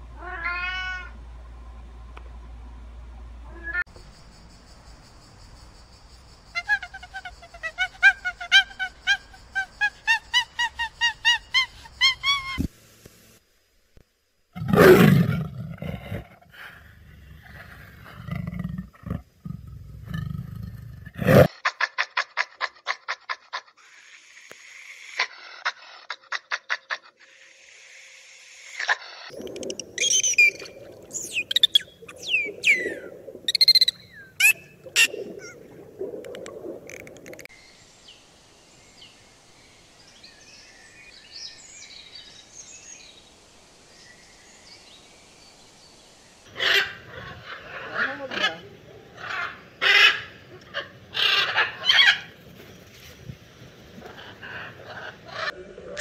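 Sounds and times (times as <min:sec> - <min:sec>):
fast high animal calls: 0:28.8 - 0:35.7
faint high chirps: 0:29.3 - 0:35.6
leopard calling: 0:29.4 - 0:37.2
badger squealing: 0:30.0 - 0:35.6.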